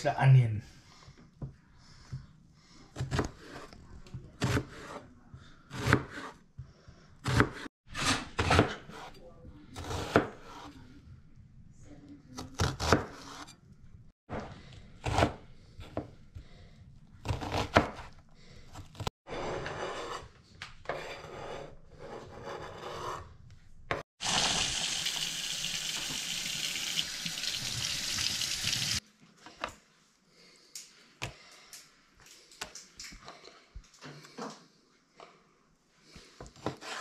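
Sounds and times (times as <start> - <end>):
knife chopping on cutting board: 7.2 - 9.1, 9.8 - 10.7.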